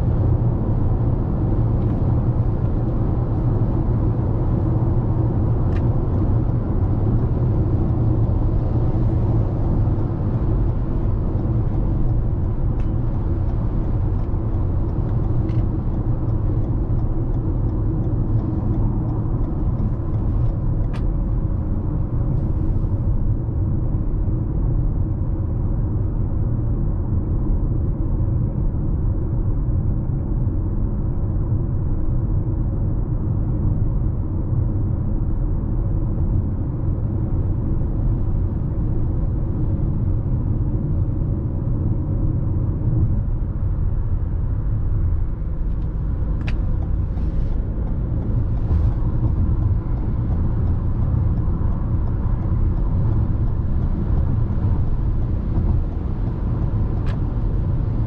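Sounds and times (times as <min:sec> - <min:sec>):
wind and tyre hiss: 0:00.0 - 0:27.4, 0:30.7 - 0:58.0
car engine and tyres rumbling: 0:00.0 - 0:58.0.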